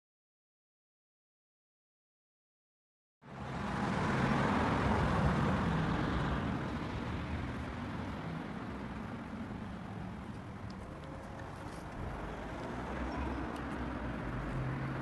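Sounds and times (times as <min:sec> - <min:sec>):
traffic hum: 0:03.2 - 0:15.0
vehicle passing: 0:03.3 - 0:15.0.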